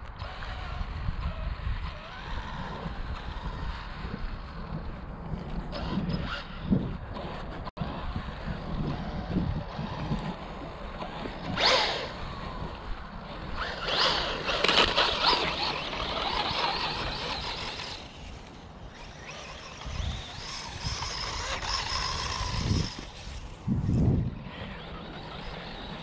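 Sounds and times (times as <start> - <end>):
rc car motor whine: 0.0 - 26.0
tyres on gravel and leaves: 10.4 - 26.0.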